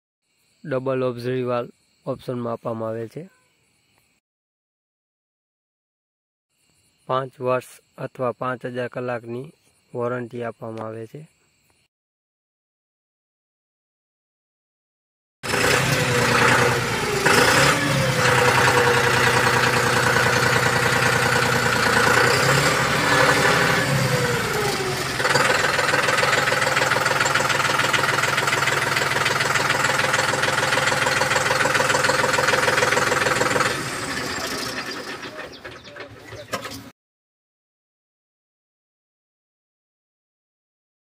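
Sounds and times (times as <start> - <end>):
tractor diesel engine running: 15.5 - 36.9.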